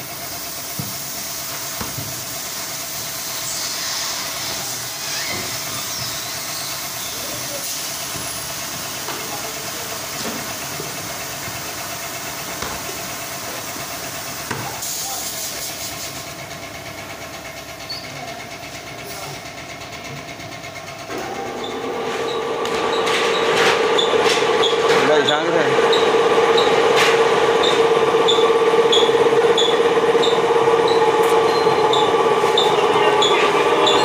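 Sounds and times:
hiss: 0:00.0 - 0:16.4
factory machinery humming: 0:00.0 - 0:34.0.

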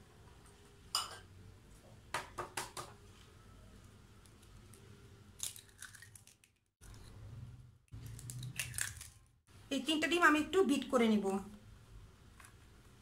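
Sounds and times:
eggshell crackling: 0:08.0 - 0:09.4.

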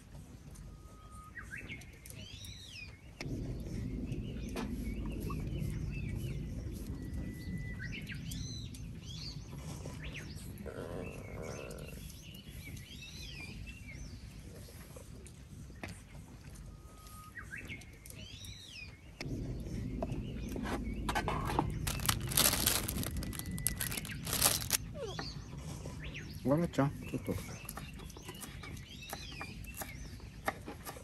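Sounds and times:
songbird singing: 0:00.6 - 0:14.9, 0:15.8 - 0:30.7
low steady rumble: 0:03.2 - 0:12.6, 0:19.1 - 0:26.4.

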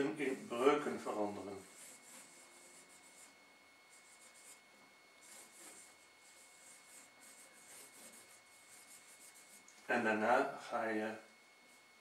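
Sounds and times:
marker scratching on whiteboard: 0:00.2 - 0:04.6, 0:05.2 - 0:09.7.

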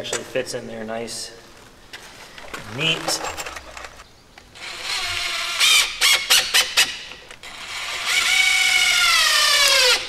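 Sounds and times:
cordless drill whining: 0:04.6 - 0:10.0.

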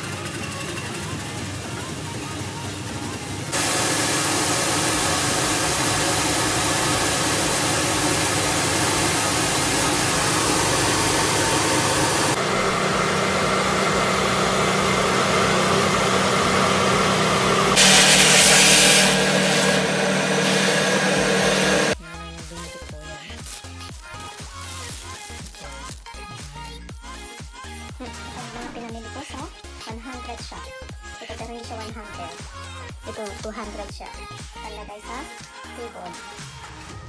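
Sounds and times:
rice polishing machine running: 0:00.0 - 0:22.0
rice pouring into a bag: 0:23.3 - 0:26.0.

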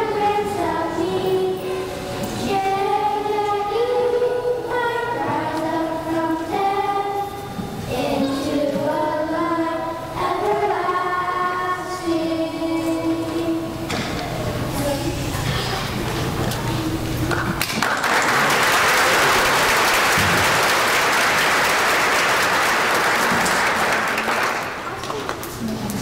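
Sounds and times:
children's choir singing: 0:00.0 - 0:17.3.

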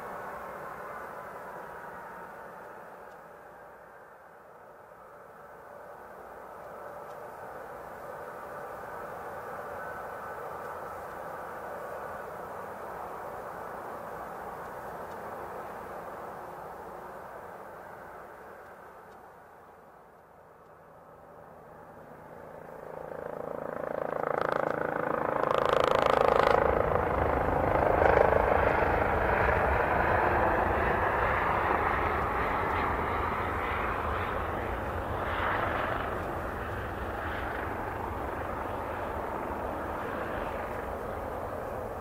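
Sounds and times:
jet engines roaring: 0:21.2 - 0:42.0.

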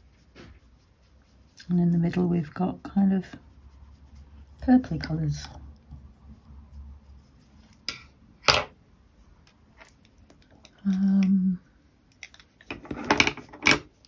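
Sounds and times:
pencils clicking and clattering: 0:12.1 - 0:14.0.

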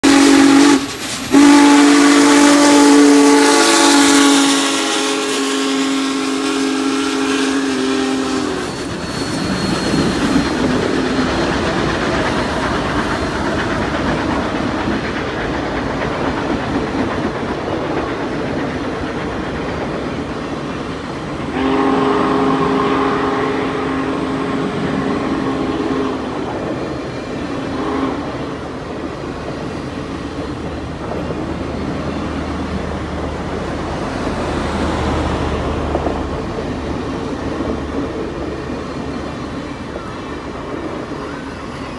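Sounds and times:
steam locomotive chime whistle: 0:00.0 - 0:11.4, 0:21.4 - 0:28.7, 0:38.6 - 0:41.9
train cars rumbling on rails: 0:00.0 - 0:41.9.

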